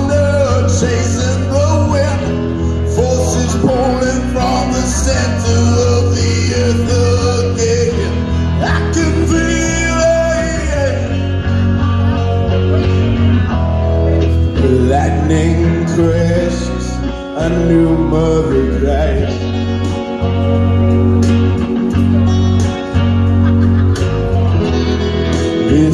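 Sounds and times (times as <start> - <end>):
man singing: 0.0 - 13.6, 14.2 - 20.5, 25.3 - 25.9
guitar: 0.0 - 25.9
steady bass pulse: 0.0 - 25.9.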